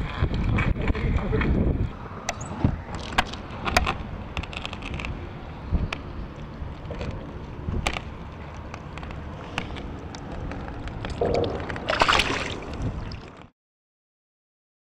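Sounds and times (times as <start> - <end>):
fish splashing into water: 11.2 - 13.4.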